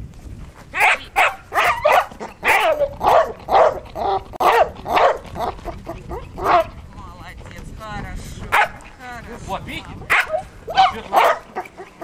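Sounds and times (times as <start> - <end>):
dog barking rapidly: 0.8 - 6.8, 8.4 - 8.9, 10.1 - 12.0.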